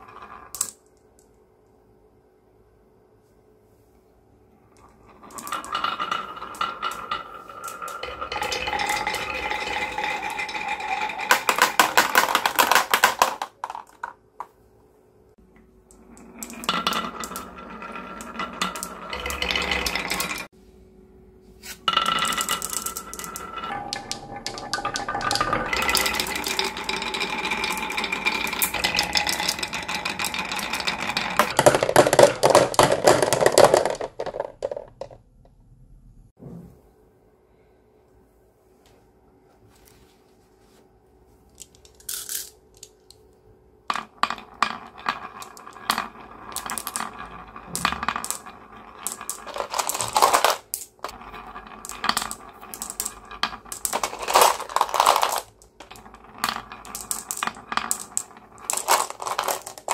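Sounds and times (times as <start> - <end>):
glass marbles rolling on wooden tracks: 0.0 - 0.9, 4.7 - 14.2, 15.9 - 20.5, 21.8 - 35.2, 43.9 - 59.9
marbles dropping into plastic toy: 0.0 - 1.0, 4.8 - 14.2, 15.9 - 20.5, 21.9 - 35.2, 41.6 - 42.9, 43.9 - 59.9.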